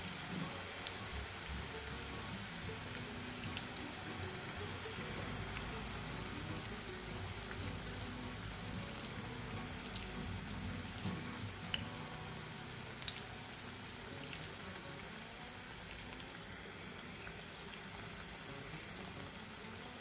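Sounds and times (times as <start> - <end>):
food deep-frying in hot oil: 0.0 - 20.0.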